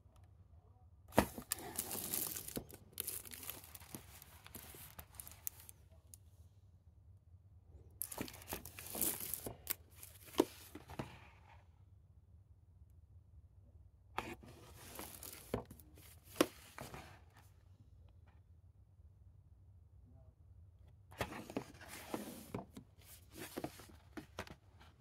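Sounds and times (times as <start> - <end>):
plastic cases rustling and scraping: 1.1 - 5.7, 8.0 - 11.3, 14.2 - 17.3, 21.2 - 25.0.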